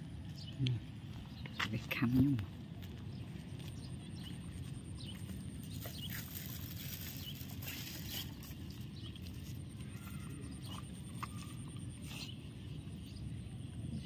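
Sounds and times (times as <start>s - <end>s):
dog chewing food: 7.4s - 12.7s.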